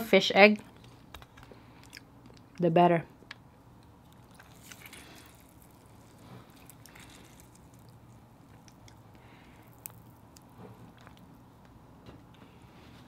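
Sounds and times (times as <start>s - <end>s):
lemon squishing by hand: 3.3s - 11.5s.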